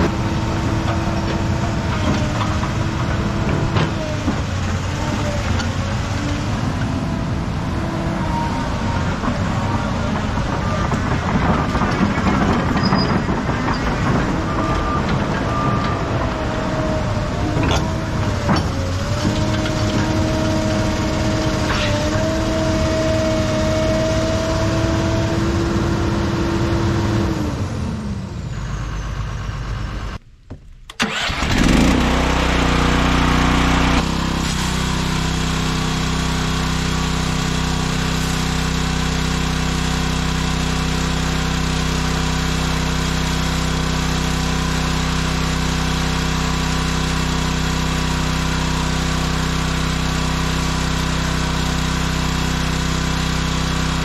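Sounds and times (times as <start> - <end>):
hydraulic whine: 0.0 - 27.3
excavator diesel engine under load: 0.0 - 30.2, 31.0 - 54.0.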